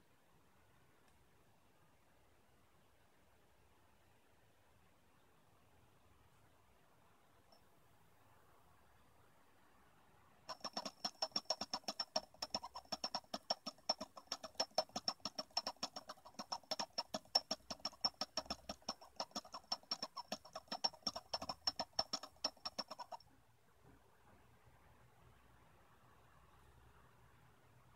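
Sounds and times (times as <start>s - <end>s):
motor spinning with rapid ticking: 10.5s - 23.2s.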